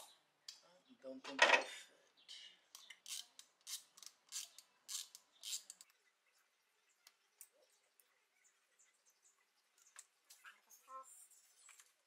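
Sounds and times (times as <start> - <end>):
ratchet wrench clicking: 2.8 - 5.8.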